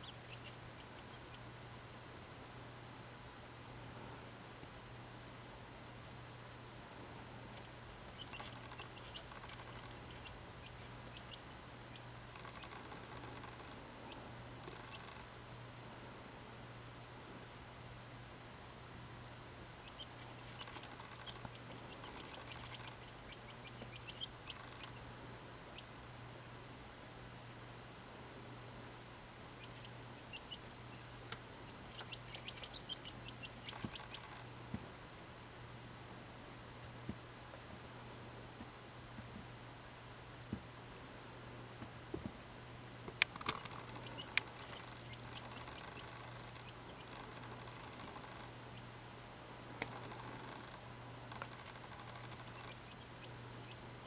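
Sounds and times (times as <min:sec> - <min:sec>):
quail chick peeping: 0:00.0 - 0:01.6, 0:07.6 - 0:15.4, 0:19.8 - 0:26.0, 0:29.5 - 0:34.6, 0:43.1 - 0:49.0, 0:49.7 - 0:54.0
low steady hum: 0:00.0 - 0:54.0.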